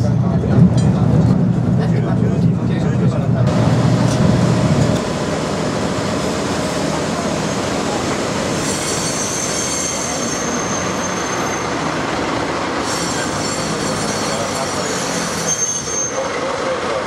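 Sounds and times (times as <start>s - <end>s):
diesel locomotive rumbling: 0.0s - 17.0s
train wheels squealing: 7.4s - 17.0s.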